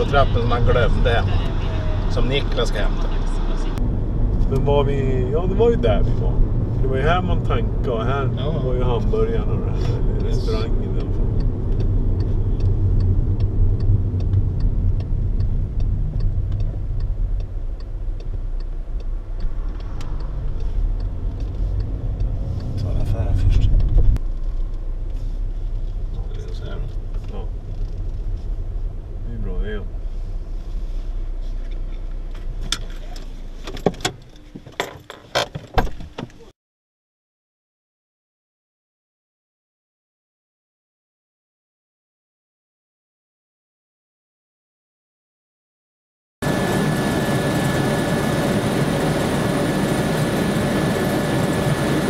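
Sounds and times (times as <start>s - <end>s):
car engine and road noise: 0.0s - 36.5s, 46.4s - 52.0s
turn signal ticking: 5.4s - 29.2s.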